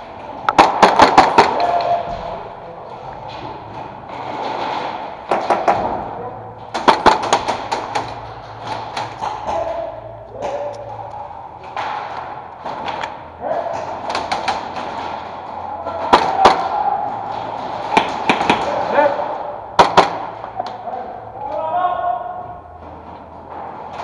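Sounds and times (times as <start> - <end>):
airsoft guns firing: 0.4 - 2.1, 4.4 - 6.0, 6.7 - 9.7, 17.6 - 20.4.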